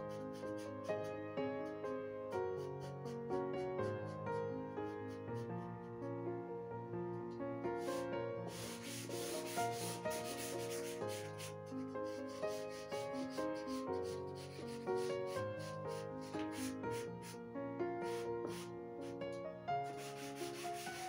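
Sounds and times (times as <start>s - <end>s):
charcoal scratching on paper: 0.0s - 1.1s, 7.8s - 17.4s, 18.1s - 21.0s.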